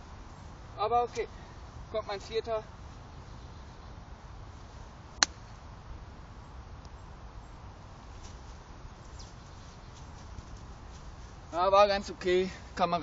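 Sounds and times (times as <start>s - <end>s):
golf club striking ball: 5.2s - 5.5s.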